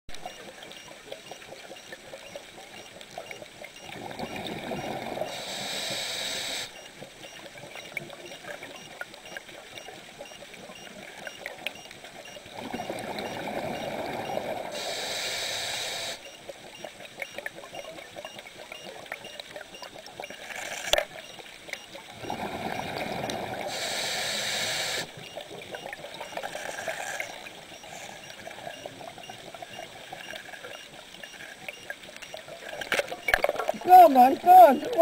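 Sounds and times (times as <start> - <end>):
faint underwater crackle: 0.1 - 35.0
scuba regulator breaths bubbling: 22.2 - 25.2.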